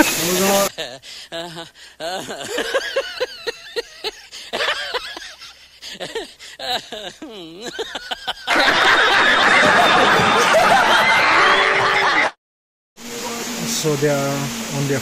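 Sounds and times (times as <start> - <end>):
voices: 0.0 - 5.2, 6.0 - 12.2, 13.2 - 15.0
person laughing in bursts: 0.0 - 12.3
audience laughter: 1.4 - 12.4
audience clapping: 8.5 - 12.3.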